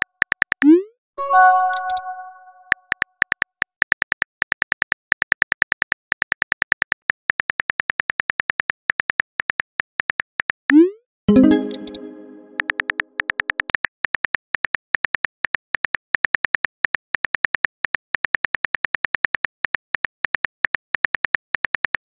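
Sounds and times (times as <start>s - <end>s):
ringing chime: 1.2s - 2.7s.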